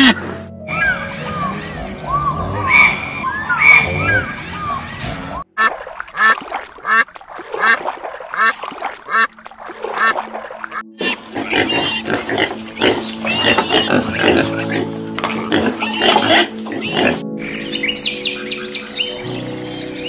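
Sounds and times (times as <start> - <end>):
soft background music: 0.0 - 4.1, 8.4 - 20.0
eiders calling: 0.0 - 7.0, 9.9 - 20.0
piglets squealing and grunting: 11.0 - 17.2.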